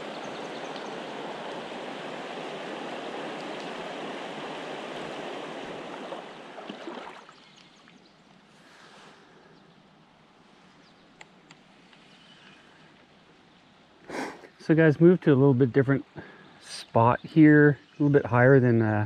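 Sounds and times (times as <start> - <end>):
river water rushing: 0.0 - 7.4.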